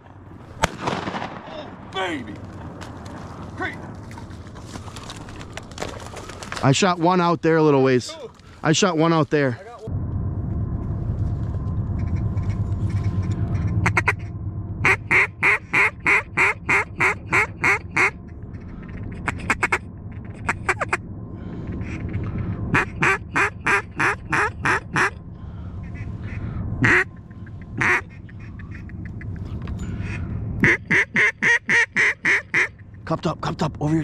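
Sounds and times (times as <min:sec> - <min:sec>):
duck quacking: 0:14.8 - 0:18.2, 0:19.2 - 0:19.8, 0:22.7 - 0:25.2, 0:25.8 - 0:32.8.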